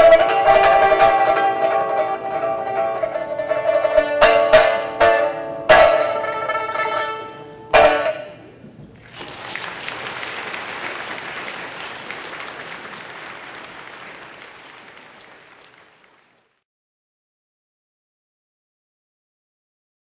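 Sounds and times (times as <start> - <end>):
audience applauding: 8.9 - 16.6.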